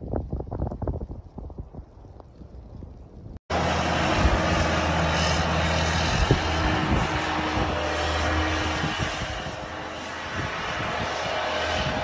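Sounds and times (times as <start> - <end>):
loader engine humming: 3.5 - 12.0
steady rushing noise: 3.5 - 12.0.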